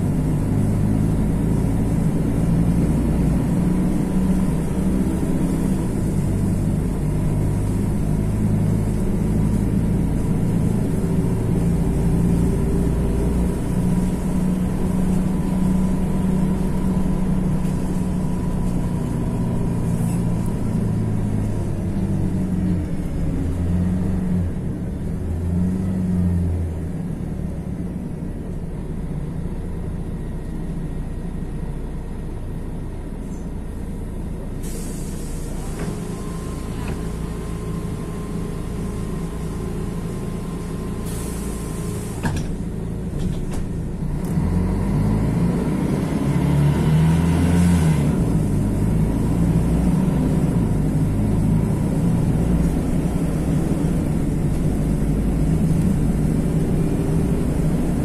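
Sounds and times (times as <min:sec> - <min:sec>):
bus diesel engine running: 0:00.0 - 0:58.0
air brake hisses: 0:34.6 - 0:36.8, 0:41.0 - 0:42.6.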